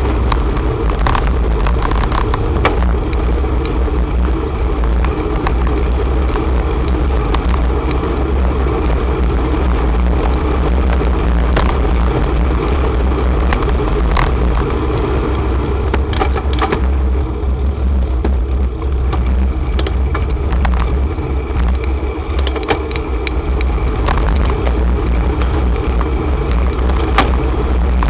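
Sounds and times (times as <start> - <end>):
bicycle clicks and rattles: 0.0 - 28.0
road and traffic noise: 0.0 - 28.0
wind rumble on microphone: 0.0 - 28.0.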